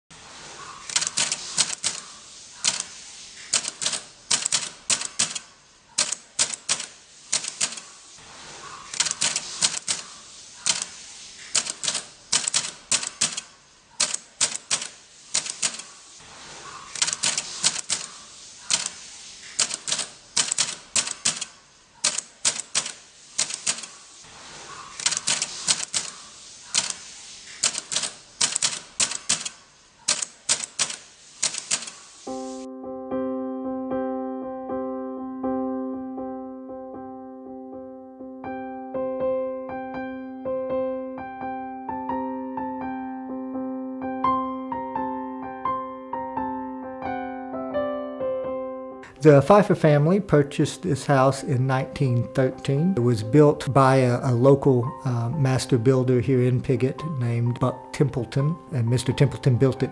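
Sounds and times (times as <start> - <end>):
typewriter keys clacking: 0.9 - 7.9, 8.9 - 15.9, 17.0 - 24.0, 25.0 - 27.0, 27.6 - 32.0.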